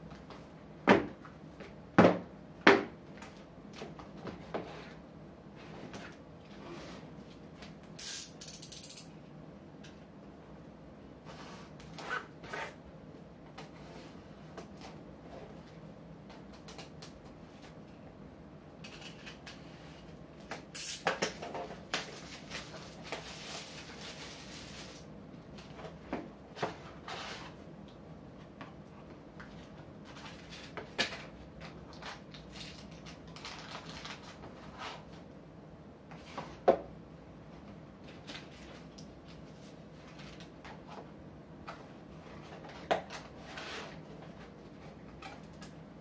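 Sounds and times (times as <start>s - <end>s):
cardboard and packing rustling: 21.6s - 27.6s, 29.5s - 35.2s.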